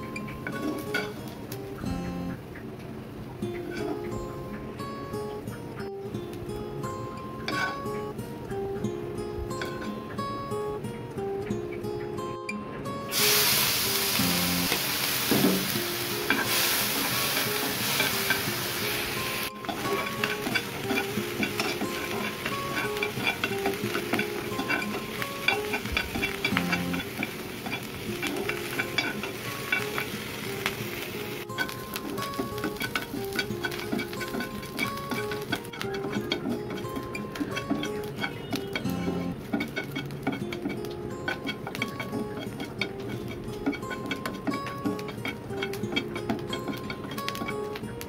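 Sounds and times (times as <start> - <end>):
shrimp sizzling in hot oil: 0.0 - 1.8, 13.1 - 48.0
spatula scraping a pan: 0.3 - 1.2, 3.6 - 4.1, 7.5 - 7.9, 13.1 - 47.8.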